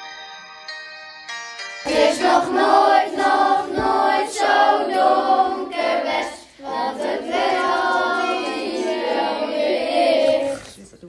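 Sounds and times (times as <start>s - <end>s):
several voices singing together: 1.9s - 10.8s.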